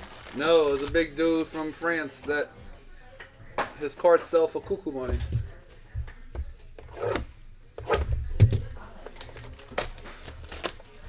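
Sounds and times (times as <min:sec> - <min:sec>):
card packs rustling: 0:00.0 - 0:02.2, 0:09.0 - 0:11.0.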